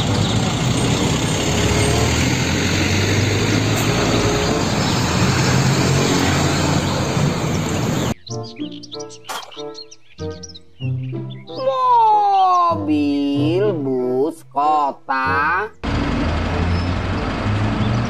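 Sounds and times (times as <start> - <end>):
dump truck driving past: 0.0 - 8.2, 15.8 - 18.0
road and wind noise: 0.0 - 8.2, 15.8 - 18.0
bird chirps: 4.0 - 12.9
children's music: 8.1 - 15.8.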